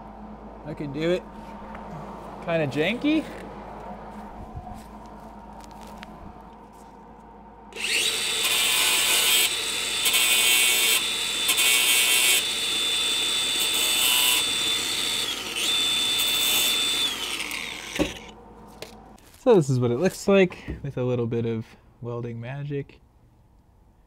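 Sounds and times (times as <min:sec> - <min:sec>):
power tool high whine: 0:07.7 - 0:18.4.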